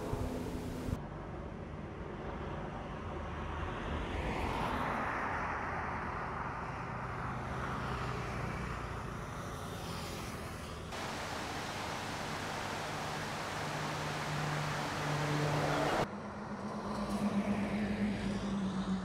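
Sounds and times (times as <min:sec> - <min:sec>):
engine drone: 0:00.0 - 0:01.0, 0:10.9 - 0:19.0
rushing noise: 0:11.0 - 0:16.1.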